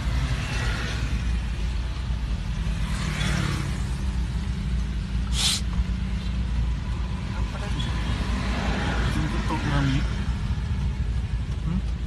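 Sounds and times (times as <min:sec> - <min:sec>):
car engine rumbling: 0:00.0 - 0:12.0
short sharp hiss: 0:05.2 - 0:05.7.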